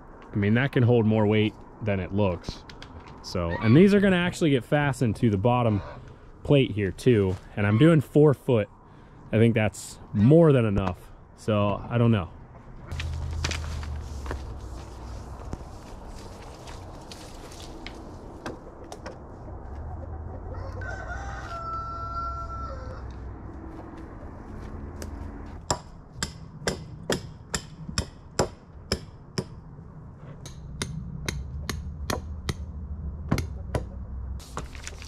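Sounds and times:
rooster crowing: 20.2 - 23.3.

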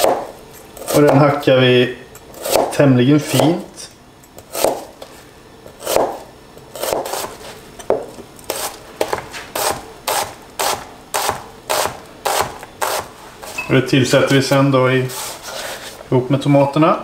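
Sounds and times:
knife chopping on cutting board: 0.0 - 1.3, 2.4 - 3.6, 4.4 - 5.0, 5.7 - 13.6.

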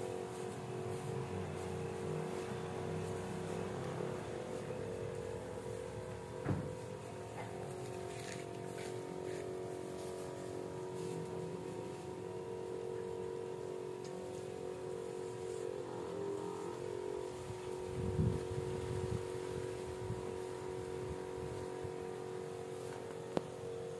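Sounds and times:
faint rustle of foliage: 0.0 - 23.9
sprayer pump motor hum: 0.0 - 23.9
low thump: 6.4 - 6.8.

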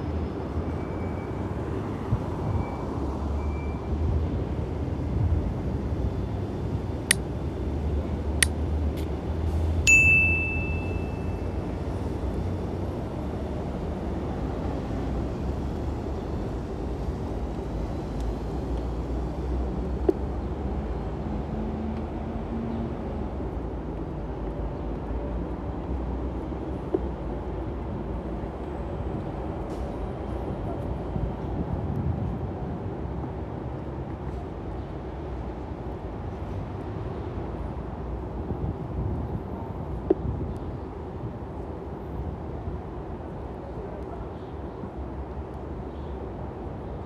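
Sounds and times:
city traffic rumble: 0.0 - 47.0
sharp clicks: 8.4 - 9.1
short high ding: 9.9 - 11.5.

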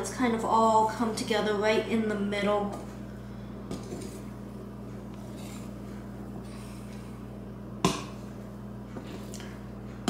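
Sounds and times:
steady low hum: 0.0 - 10.0
whisk stirring and scraping dough: 5.2 - 7.0.

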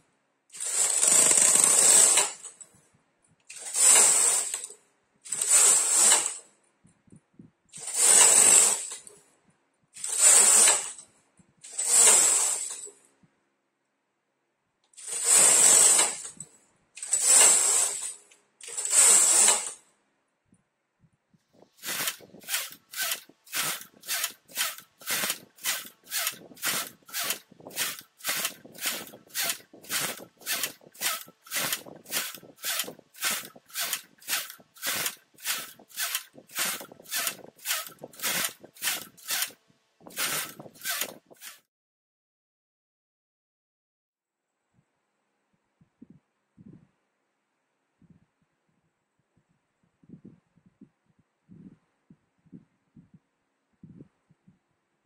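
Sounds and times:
knitting machine carriage sliding: 0.5 - 2.7, 3.5 - 6.5, 7.7 - 9.2, 10.0 - 13.0, 15.0 - 19.8, 21.6 - 41.7.

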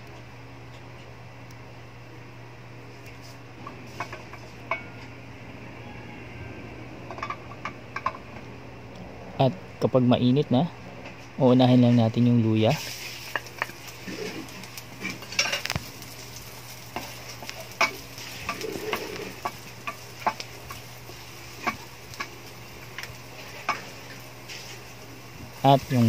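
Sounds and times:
steady low hum: 0.0 - 26.0
ginger sizzling in hot oil: 2.8 - 5.1, 12.6 - 26.0.

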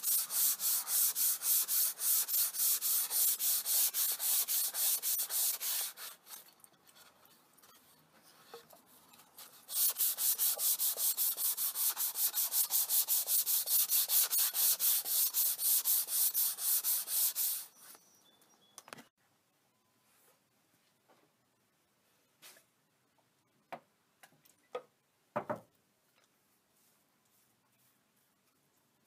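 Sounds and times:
sandpaper rubbing on wood: 0.0 - 6.3, 9.6 - 17.7.

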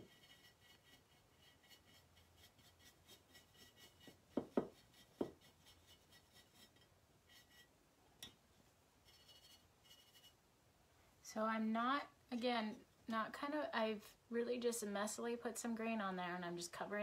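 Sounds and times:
brush scratching on ceramic: 0.0 - 7.7, 9.0 - 10.4.

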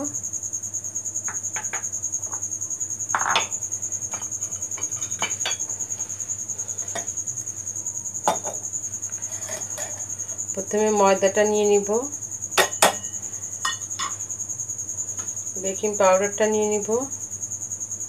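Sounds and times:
crickets chirping: 0.0 - 18.0
dishes clinking: 3.1 - 5.9, 8.2 - 8.6, 9.2 - 10.1, 12.6 - 14.2.

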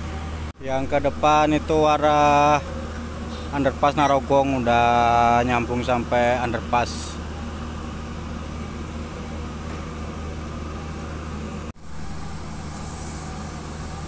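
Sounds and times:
diesel engine running: 0.0 - 14.0.

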